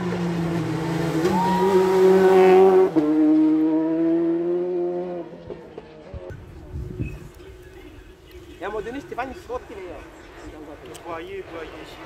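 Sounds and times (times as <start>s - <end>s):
rally car engine passing: 0.0s - 6.2s.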